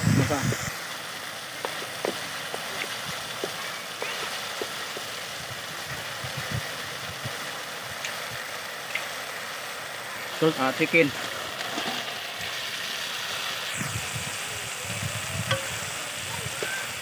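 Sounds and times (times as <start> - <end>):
steady hiss: 0.0 - 17.0
sauce bubbling and popping: 1.5 - 7.3, 7.9 - 9.6.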